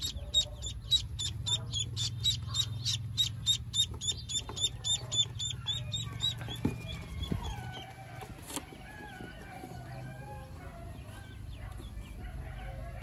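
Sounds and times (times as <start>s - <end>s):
duckling peeping: 0.0s - 9.9s.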